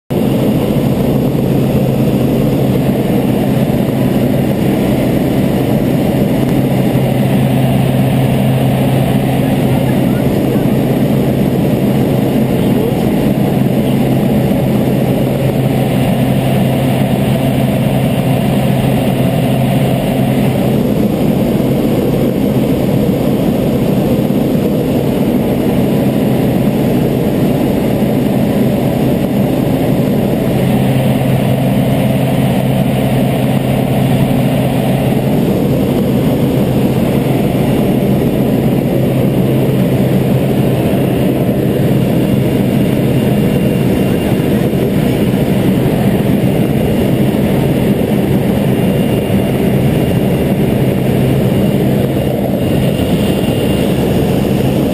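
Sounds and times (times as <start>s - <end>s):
airplane engine and propeller drone: 0.0s - 54.9s
low hum: 0.1s - 54.9s.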